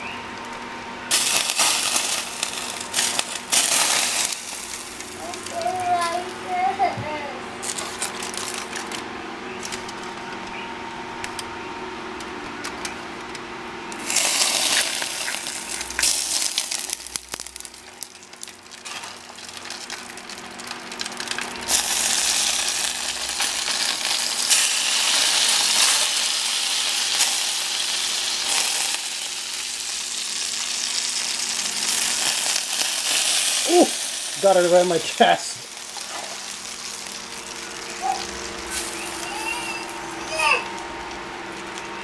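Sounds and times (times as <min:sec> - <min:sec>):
hot oil sizzling on fish: 0:01.1 - 0:06.3, 0:13.9 - 0:40.2.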